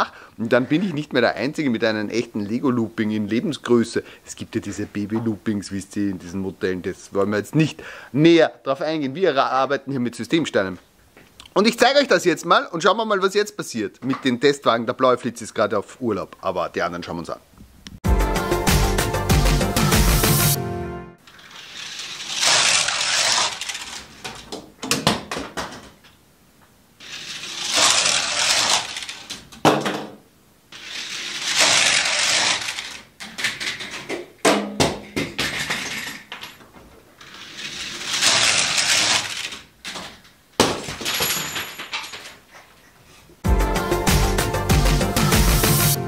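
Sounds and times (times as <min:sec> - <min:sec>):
toy cars rattling on plastic track: 0:21.3 - 0:24.6, 0:27.0 - 0:29.6, 0:30.7 - 0:34.2, 0:35.4 - 0:36.6, 0:37.2 - 0:40.3.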